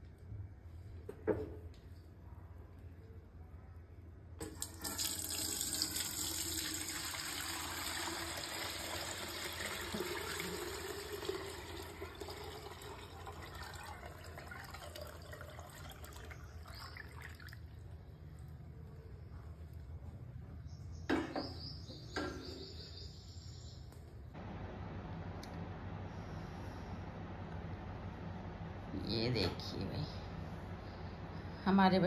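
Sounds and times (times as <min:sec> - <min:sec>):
liquid pouring through strainer: 0:04.4 - 0:18.0.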